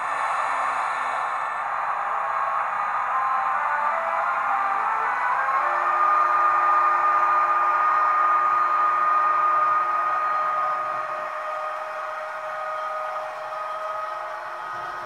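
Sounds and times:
electric locomotive whine: 0:00.0 - 0:15.0.

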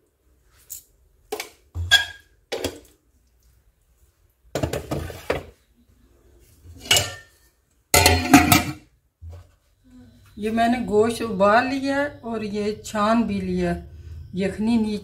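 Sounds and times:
metal kitchenware clattering: 0:01.8 - 0:02.8, 0:04.6 - 0:05.6, 0:06.7 - 0:08.9
steel plate clanking on metal pot: 0:06.8 - 0:07.3, 0:08.0 - 0:08.8.

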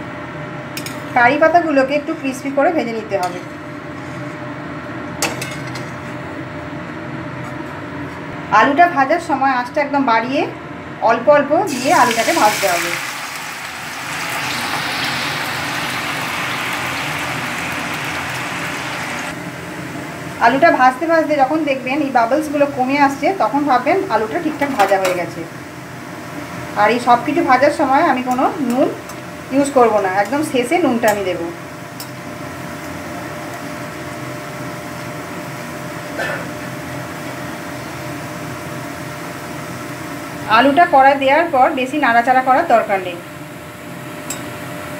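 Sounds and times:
potato shreds sizzling in hot oil: 0:11.7 - 0:19.4.

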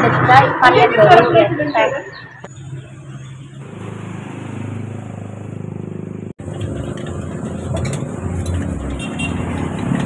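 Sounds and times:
engine running with pulsing hum: 0:05.0 - 0:10.0.

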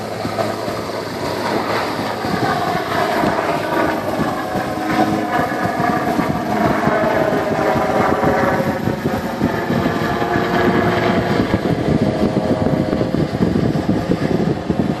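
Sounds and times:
helicopter rotor chop: 0:00.0 - 0:15.0
helicopter whine: 0:00.0 - 0:15.0.

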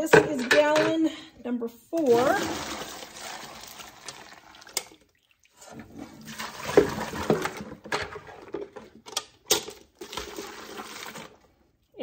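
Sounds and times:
water pouring and splashing: 0:02.0 - 0:08.7, 0:09.9 - 0:12.0.

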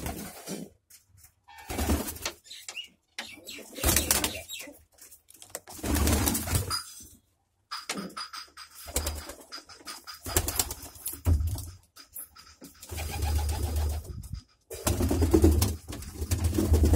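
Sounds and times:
wings flapping and rustling: 0:00.0 - 0:07.0, 0:07.8 - 0:16.9
pigeons cooing: 0:12.6 - 0:16.9.

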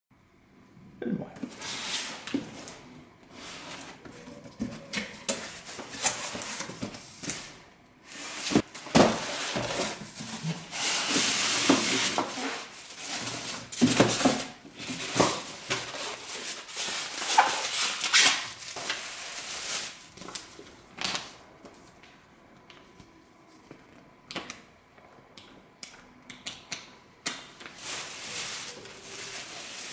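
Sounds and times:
plastic wrap crinkling: 0:08.5 - 0:21.4, 0:27.6 - 0:29.9.

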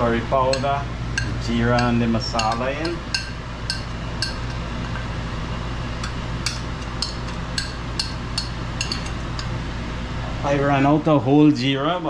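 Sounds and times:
metal spoon tapping glass and pot: 0:00.4 - 0:05.0, 0:06.0 - 0:09.6.

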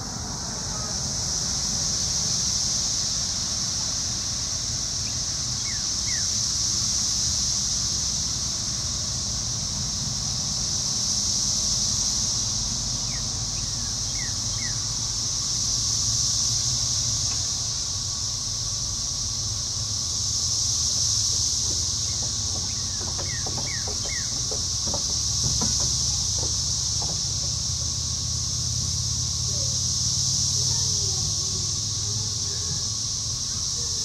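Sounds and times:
high-pitched insect chorus: 0:00.0 - 0:34.0
faint falling bird chirps: 0:22.0 - 0:27.5.

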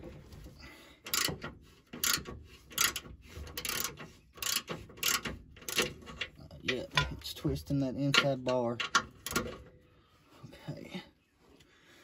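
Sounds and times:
ratchet wrench clicking: 0:01.0 - 0:06.0.

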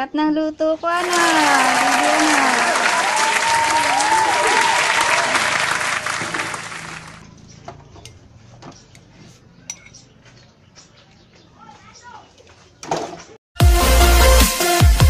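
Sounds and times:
cheering voices: 0:00.9 - 0:07.2
applause: 0:01.0 - 0:07.2
metal spoon clinking glass bowl: 0:09.7 - 0:10.0.

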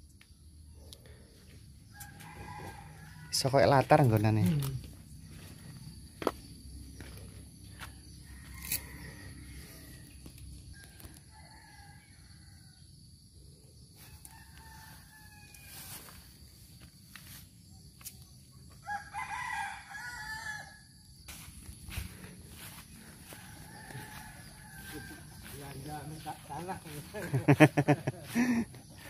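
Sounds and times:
roosters crowing: 0:01.8 - 0:04.5, 0:05.3 - 0:13.1, 0:13.9 - 0:16.6, 0:18.6 - 0:21.1, 0:22.0 - 0:29.0.

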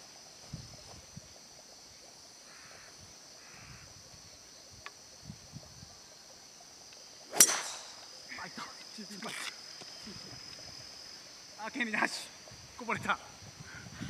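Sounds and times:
insects droning: 0:00.0 - 0:14.0
crow cawing: 0:02.5 - 0:03.8
golf club striking ball: 0:07.3 - 0:08.1.

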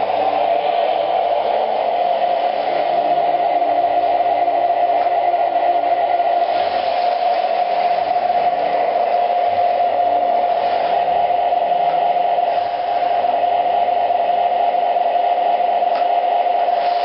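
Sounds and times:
model train whine and rumble: 0:00.0 - 0:17.0.

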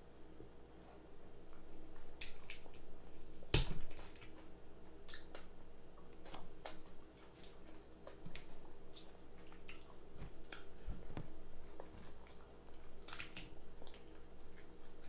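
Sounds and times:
wet chewing and smacking: 0:01.4 - 0:15.0
crab shells cracking: 0:13.0 - 0:14.1.

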